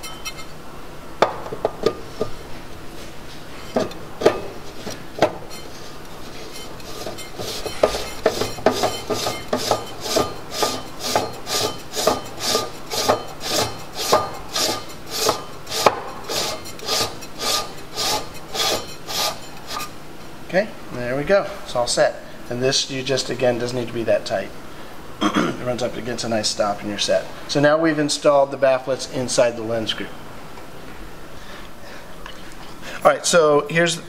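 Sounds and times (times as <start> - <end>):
tube rasping scrapes: 5.5 - 20.0.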